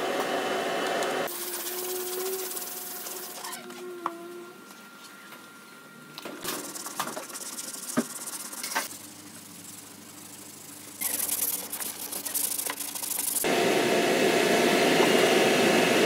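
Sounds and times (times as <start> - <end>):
sandpaper rasping on filler: 1.3 - 3.5.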